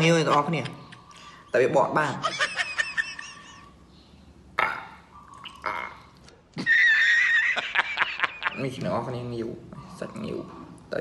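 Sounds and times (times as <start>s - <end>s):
man laughing loudly: 2.2s - 3.7s, 6.6s - 8.6s.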